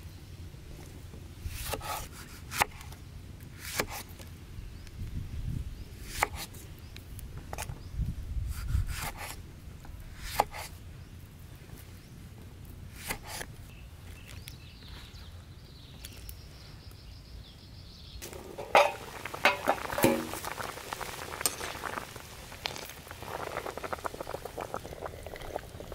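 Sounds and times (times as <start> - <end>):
water boiling in a wok: 18.2 - 25.9.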